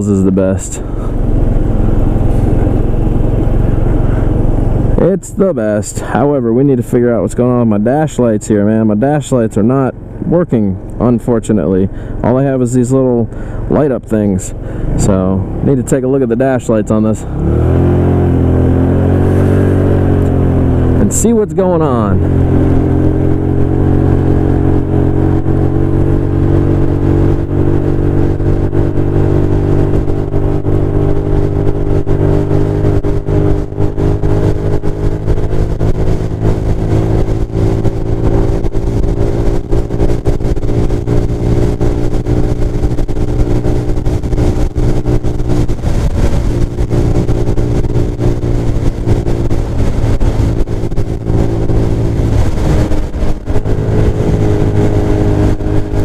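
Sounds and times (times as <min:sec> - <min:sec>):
scooter engine running: 0:17.0 - 0:56.0
wind on microphone: 0:21.9 - 0:56.0.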